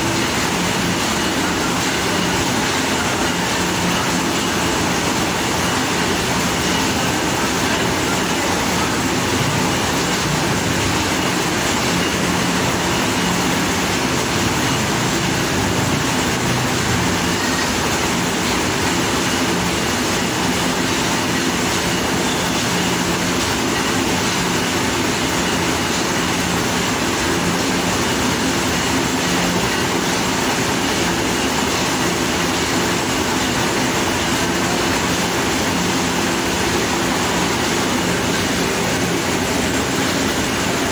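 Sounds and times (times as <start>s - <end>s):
mill machinery grinding: 0.0s - 40.9s.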